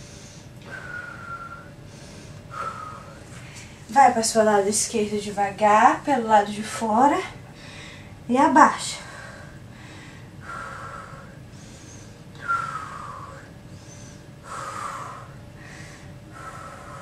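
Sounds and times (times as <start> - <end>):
woman breathing heavily: 0.0 - 3.9, 7.4 - 8.3, 8.9 - 17.0.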